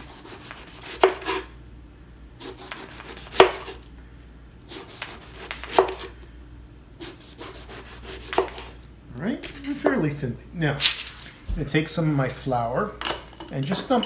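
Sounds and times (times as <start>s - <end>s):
knife sawing through eggplant: 0.0s - 1.5s, 2.4s - 3.8s, 4.7s - 6.1s, 7.0s - 8.8s.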